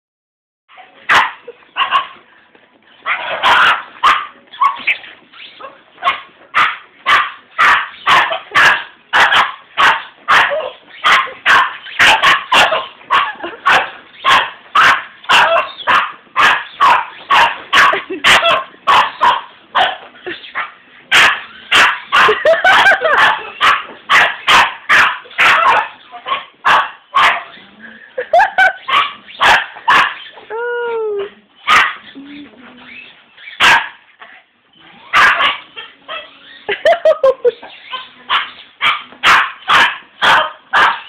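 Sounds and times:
dog barking sharply: 21.1 - 25.9, 28.9 - 30.2, 33.6 - 34.0, 35.2 - 35.6, 38.3 - 41.0.

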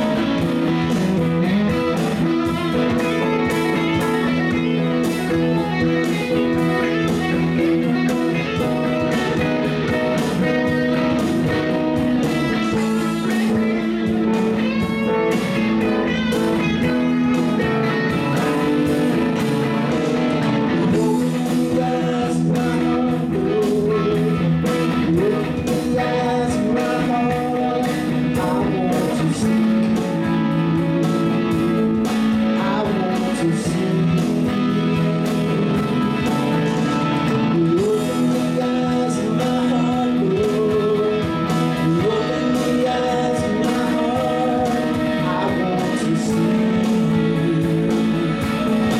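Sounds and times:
live rock band playing: 0.0 - 48.9.

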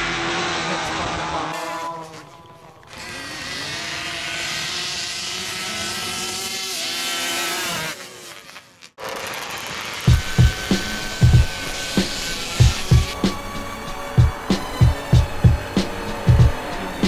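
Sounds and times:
quad engines running flat out: 0.0 - 17.0
deep thumping music beats: 10.1 - 17.0.

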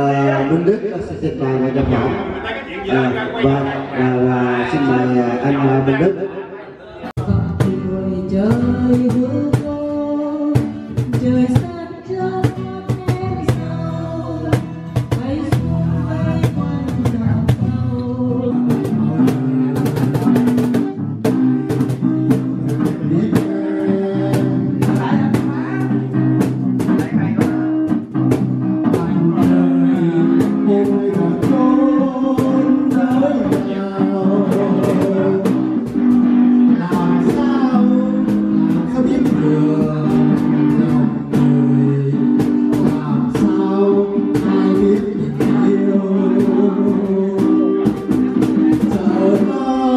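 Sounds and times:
man singing into microphone: 0.0 - 6.2, 7.2 - 27.6, 28.3 - 49.9
acoustic guitar strummed: 7.2 - 49.9
cajon struck by hand: 7.2 - 49.9.

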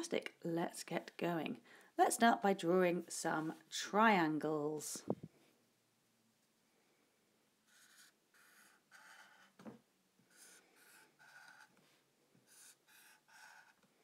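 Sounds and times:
marker rubbing on whiteboard: 7.7 - 9.6, 10.3 - 11.7, 12.4 - 13.8.

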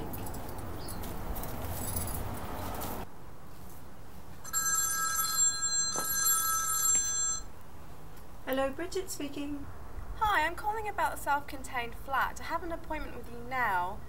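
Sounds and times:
phone ringing electronic tone: 4.5 - 7.5.

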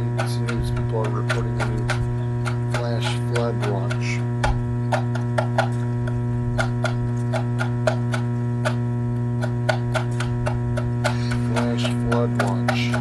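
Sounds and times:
steady electrical hum: 0.0 - 13.0
short clicks and taps: 0.2 - 8.8, 9.4 - 13.0.

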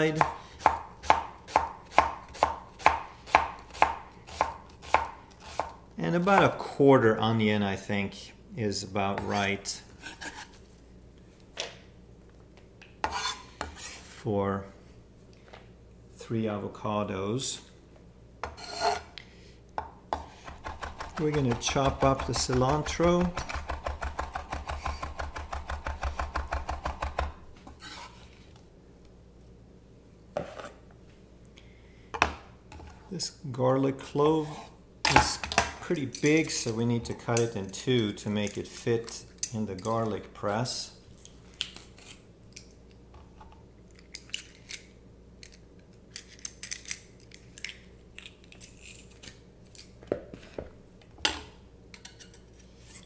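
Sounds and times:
knife chopping on wooden board: 0.2 - 5.7, 20.1 - 27.3.

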